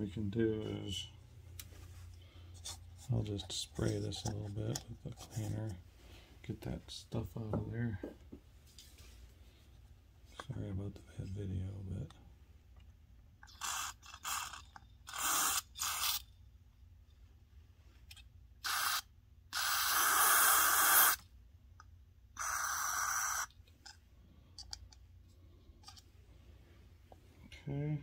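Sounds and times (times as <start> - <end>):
aerosol spray hissing: 19.6 - 21.2.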